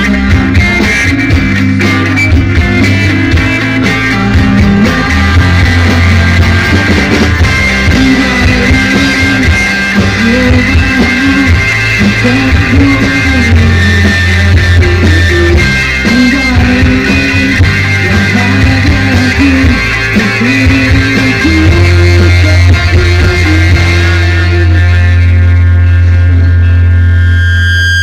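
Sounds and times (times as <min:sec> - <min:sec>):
live rock band playing: 0:00.0 - 0:28.0.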